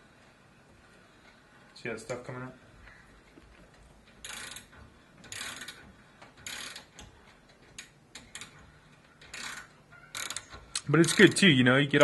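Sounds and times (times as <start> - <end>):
hand ratchet clicking: 4.0 - 11.4.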